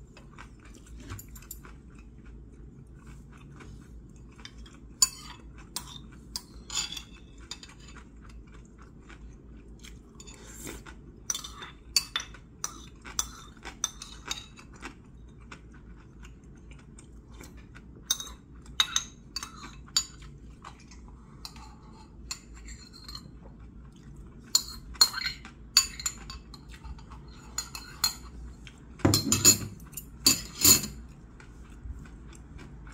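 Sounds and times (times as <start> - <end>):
utensils clinking on ceramic bowl: 4.4 - 8.1, 11.3 - 14.8, 18.0 - 20.3, 21.4 - 23.4, 24.5 - 28.4, 29.0 - 31.2.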